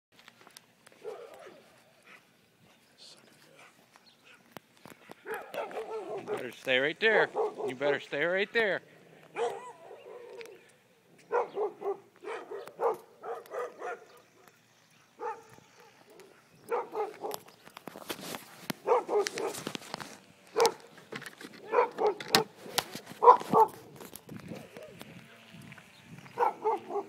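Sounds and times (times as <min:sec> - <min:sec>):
dog barking: 0:01.0 - 0:01.6, 0:05.2 - 0:06.5, 0:07.2 - 0:07.9, 0:09.3 - 0:10.6, 0:11.3 - 0:14.2, 0:15.2 - 0:17.5, 0:18.8 - 0:19.7, 0:20.6 - 0:20.9, 0:21.6 - 0:22.5, 0:23.2 - 0:23.9, 0:26.4 - 0:27.0.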